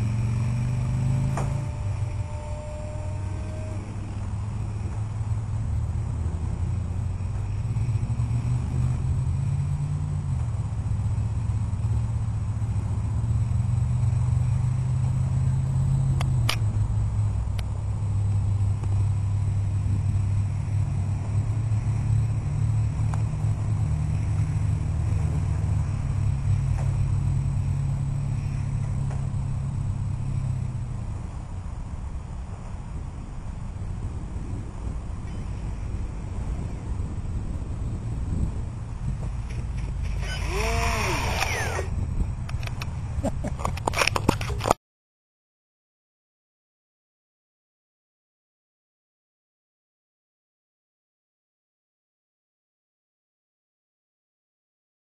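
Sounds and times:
wind buffeting microphone: 0:16.2 - 0:44.8.

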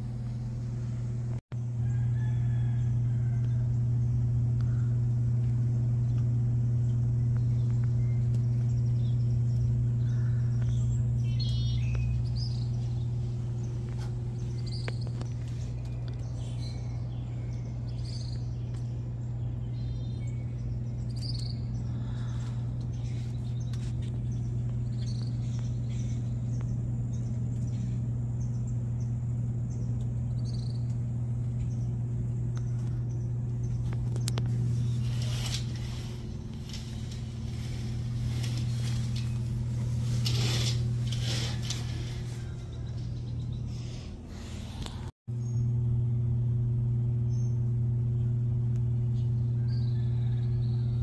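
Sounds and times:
low hum: 0:00.0 - 0:51.0
rustling: 0:33.9 - 0:42.9.

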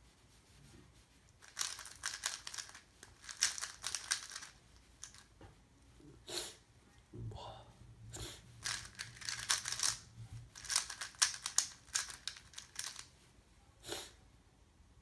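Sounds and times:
puzzle cube clicking: 0:01.4 - 0:05.2, 0:08.6 - 0:10.0, 0:10.6 - 0:13.1.

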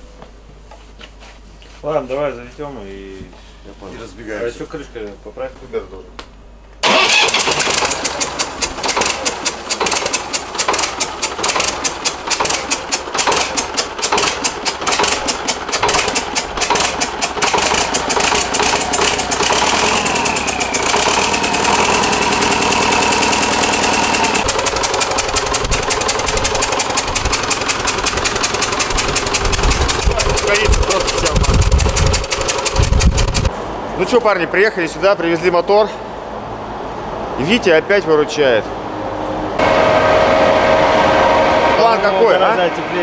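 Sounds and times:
engine clatter: 0:06.8 - 0:33.5
diesel engine running: 0:06.8 - 0:33.7, 0:39.6 - 0:43.0.

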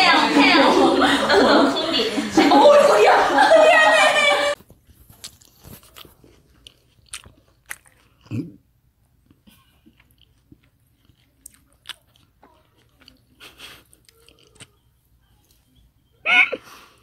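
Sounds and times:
person chewing food: 0:04.8 - 0:15.8.

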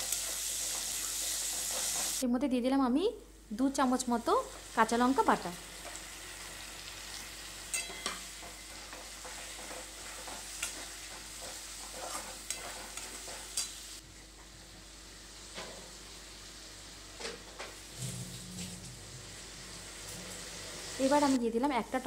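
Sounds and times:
paste sizzling in oil: 0:00.0 - 0:02.2, 0:04.0 - 0:14.0
metal spatula scraping pan: 0:07.7 - 0:13.7.

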